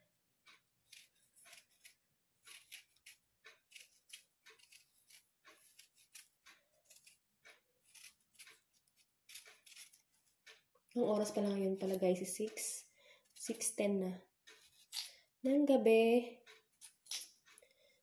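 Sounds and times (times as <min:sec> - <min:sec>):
knife scraping potato skin: 0:00.6 - 0:12.3, 0:13.2 - 0:13.7, 0:14.5 - 0:15.3, 0:16.7 - 0:17.6.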